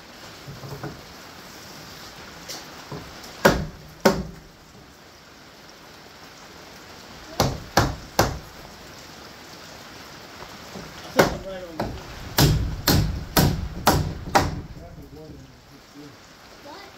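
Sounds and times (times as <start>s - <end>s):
hammer striking wood: 3.4s - 4.5s, 7.4s - 8.5s, 11.2s - 14.8s.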